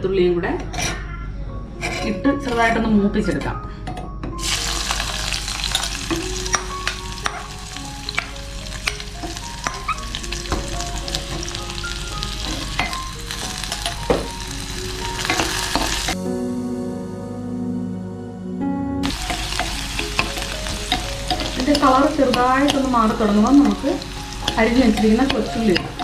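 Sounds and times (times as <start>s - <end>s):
garlic sizzling in hot oil: 4.4s - 16.2s, 19.0s - 26.0s
spoon clicking and scraping pan: 5.6s - 7.5s, 8.1s - 10.6s, 19.2s - 26.0s.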